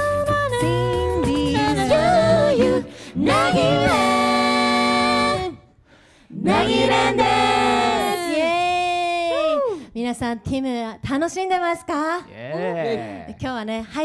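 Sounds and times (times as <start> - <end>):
a cappella group singing: 0.0 - 9.4.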